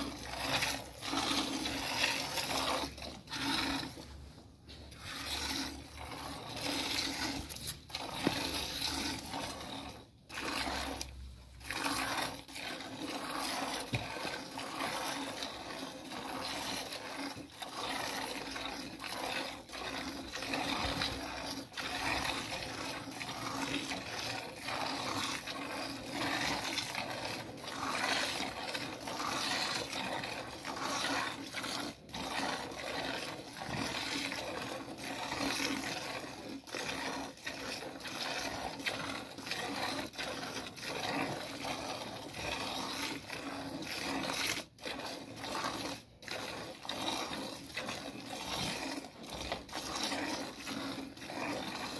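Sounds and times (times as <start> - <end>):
milk squirting into a bucket: 0.0 - 51.9.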